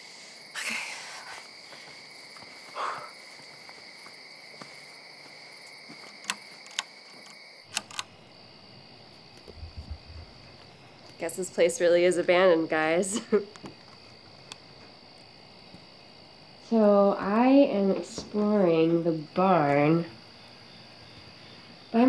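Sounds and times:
crickets chirping: 0:00.0 - 0:22.0
sharp clicks: 0:07.7 - 0:08.1.

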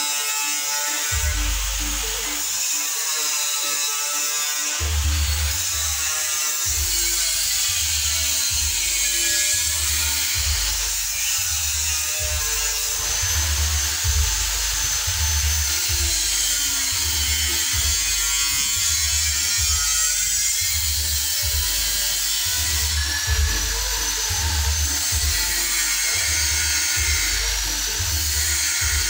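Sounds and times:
gliding melody: 0:00.1 - 0:04.7
deep bass pulse: 0:12.3 - 0:16.7, 0:22.9 - 0:25.6.

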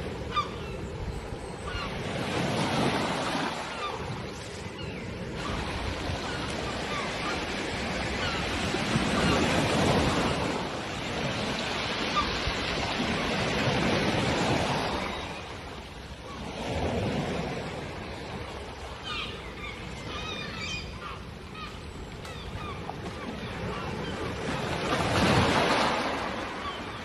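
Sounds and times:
seagulls calling: 0:00.1 - 0:15.6, 0:18.9 - 0:27.0.

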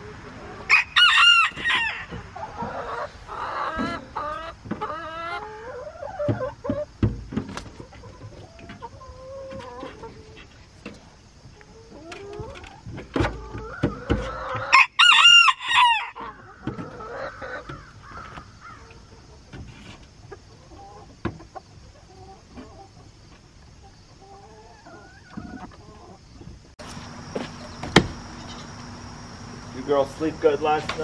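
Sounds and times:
hens clucking: 0:00.0 - 0:31.0
rooster crowing: 0:00.7 - 0:02.2, 0:14.6 - 0:16.5
thump: 0:07.0 - 0:07.7, 0:27.3 - 0:28.2.

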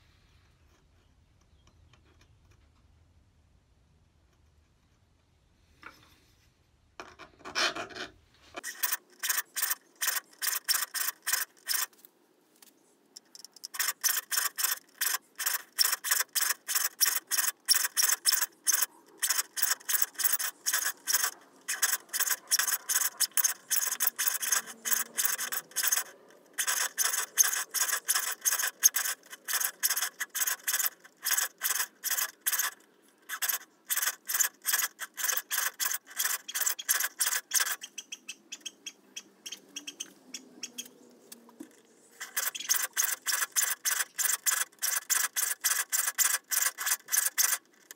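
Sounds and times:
file rasping on saw teeth: 0:08.6 - 0:11.9, 0:13.3 - 0:37.9, 0:42.2 - 0:47.9.

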